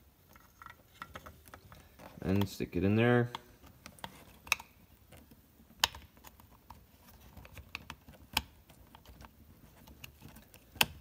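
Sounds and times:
small plastic clicks and taps: 3.2 - 11.0.

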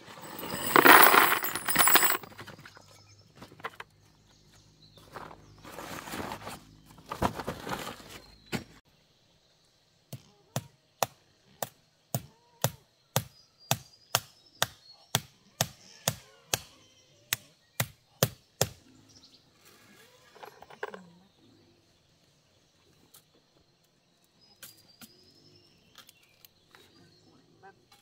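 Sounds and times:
rustling and knocking: 0.0 - 2.6.

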